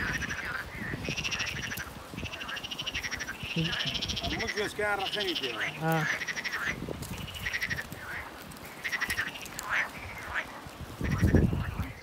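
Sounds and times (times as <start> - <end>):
frogs calling in pulsed trills: 0.0 - 12.0.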